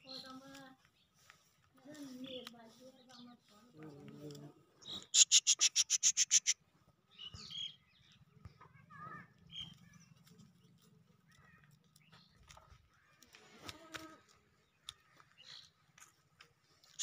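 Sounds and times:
bird chirping: 4.8s - 8.2s.

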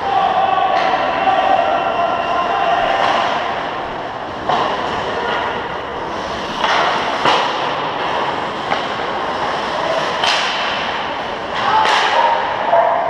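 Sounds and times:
hockey sticks and puck clacking: 0.0s - 13.0s
skates scraping on ice: 2.2s - 12.0s.

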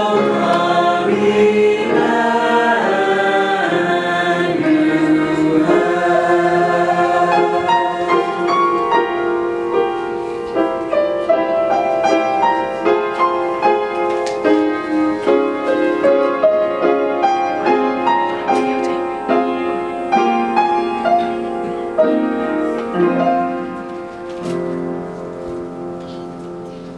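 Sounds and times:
choir holding a chord: 0.0s - 10.6s, 14.6s - 23.9s
piano playing: 0.0s - 26.9s.

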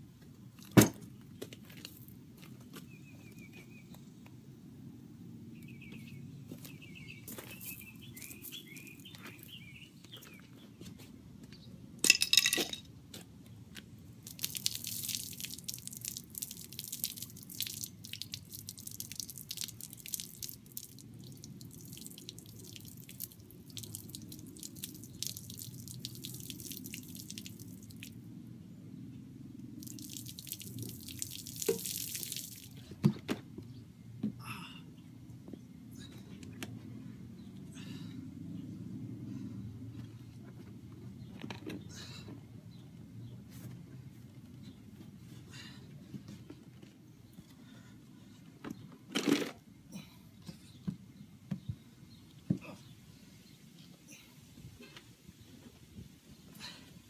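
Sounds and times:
water splashing on plastic bumper: 14.2s - 28.1s, 29.8s - 32.8s.

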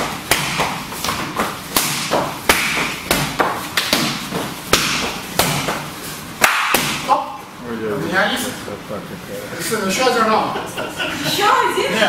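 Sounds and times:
punches and kicks on punching bag: 0.0s - 5.8s, 6.5s - 7.2s.

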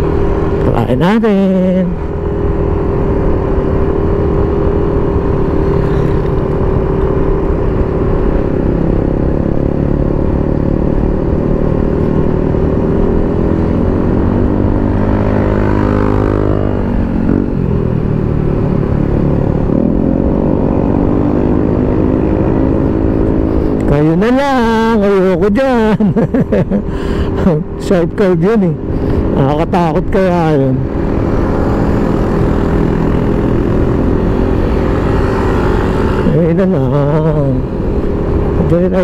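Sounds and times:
motorcycle engine: 0.0s - 39.0s.

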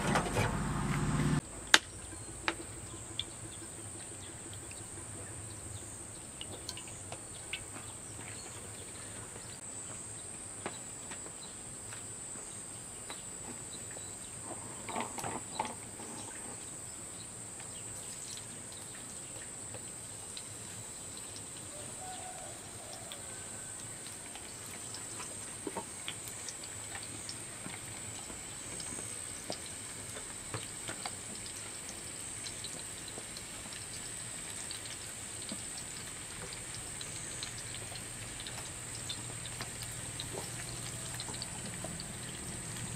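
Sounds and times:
insects chirring: 23.9s - 42.9s
taps and clicks in frying pan: 24.4s - 42.1s.

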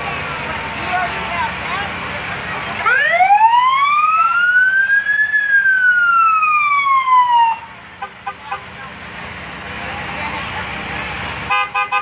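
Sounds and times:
siren wailing: 2.8s - 7.7s.

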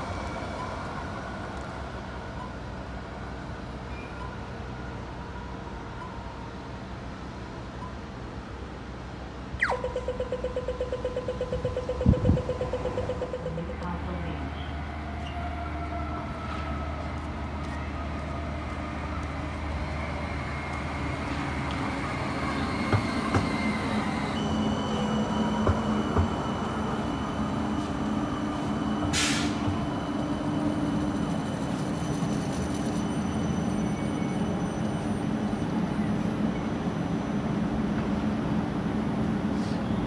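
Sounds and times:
tram electric drive whining: 0.0s - 40.0s
short hiss: 29.1s - 29.6s.

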